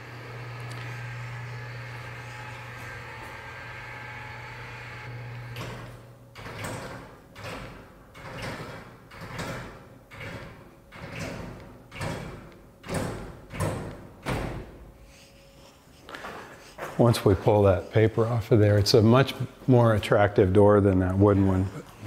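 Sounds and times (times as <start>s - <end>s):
electric lift motor humming: 0.0s - 14.4s.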